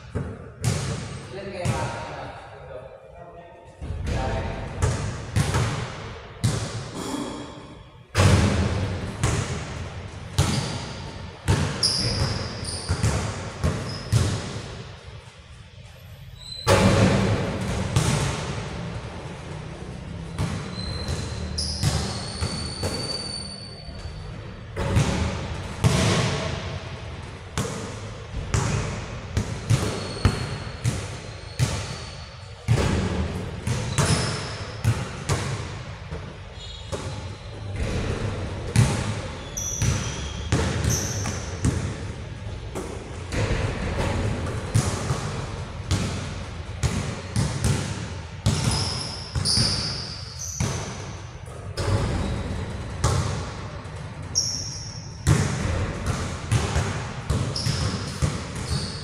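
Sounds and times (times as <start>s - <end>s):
basketball bouncing on hard court: 0.0s - 1.9s, 4.8s - 6.8s, 8.2s - 10.8s, 11.5s - 14.6s, 16.7s - 18.6s, 20.3s - 23.4s, 24.8s - 26.6s, 27.6s - 32.1s, 32.7s - 36.2s, 37.8s - 42.0s, 42.7s - 59.0s
short high squeaks: 20.7s - 24.3s, 30.0s - 32.3s, 58.7s - 59.0s.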